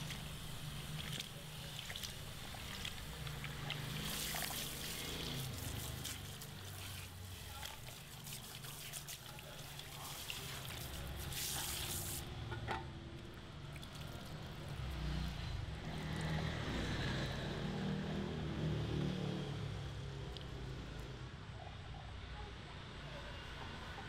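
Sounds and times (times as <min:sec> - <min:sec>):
water dripping: 0:00.0 - 0:12.1, 0:13.2 - 0:15.1
shower sprayer running water: 0:00.0 - 0:12.3
wet hair being squeezed: 0:01.0 - 0:12.2.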